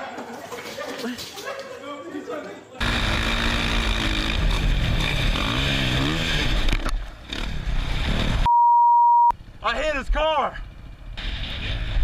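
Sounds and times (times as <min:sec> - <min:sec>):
dirt bike engine revving: 0:02.8 - 0:08.4.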